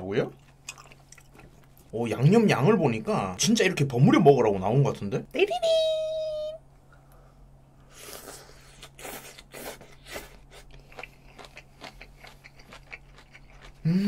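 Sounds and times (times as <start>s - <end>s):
close-up chewing: 0.3s - 1.9s, 8.8s - 14.0s.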